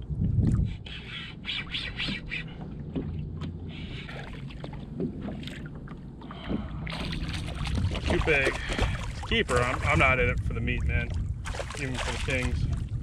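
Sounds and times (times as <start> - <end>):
wind on microphone: 0.0 - 2.6, 6.6 - 13.0
water sloshing: 0.0 - 13.0
fish thrashing and splashing: 6.4 - 10.2, 11.4 - 12.9.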